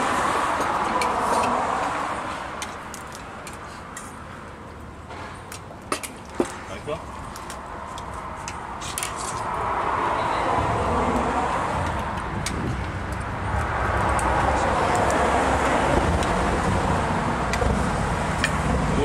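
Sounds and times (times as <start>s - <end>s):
wind and road noise: 0.0s - 19.0s.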